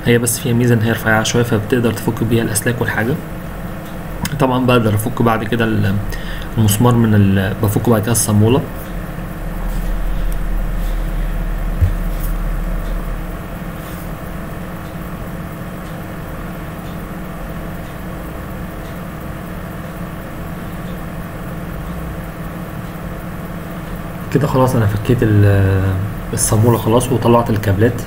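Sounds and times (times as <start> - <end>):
steady low rumble: 0.6 - 19.3
dull knock: 11.7 - 12.2.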